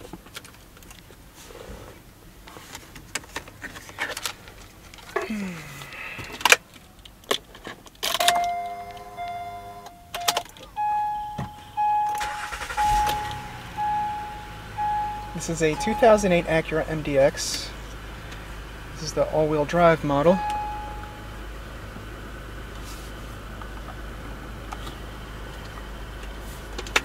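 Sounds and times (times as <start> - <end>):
car engine starting: 3.0 - 27.0
dashboard warning chimes: 8.2 - 17.8, 18.9 - 21.5.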